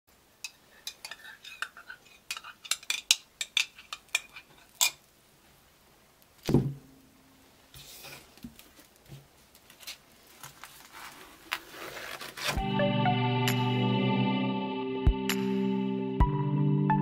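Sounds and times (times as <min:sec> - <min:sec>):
soft brushing: 0:07.7 - 0:12.6.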